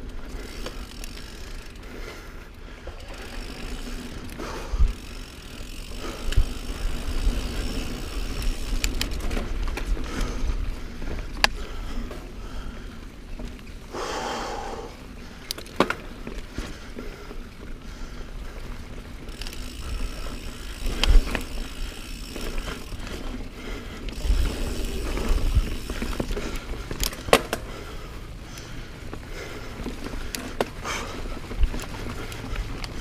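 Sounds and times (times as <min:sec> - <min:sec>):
bike knocking and rattling over bumps: 0:00.0 - 0:33.0
bike tyres rumbling on dirt: 0:00.0 - 0:33.0.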